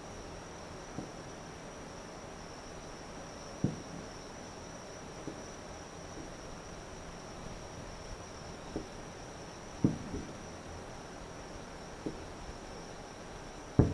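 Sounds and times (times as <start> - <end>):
insects trilling: 0.0 - 13.9
distant fireworks booms: 3.6 - 4.1, 8.7 - 9.1, 9.7 - 10.5, 12.0 - 12.5.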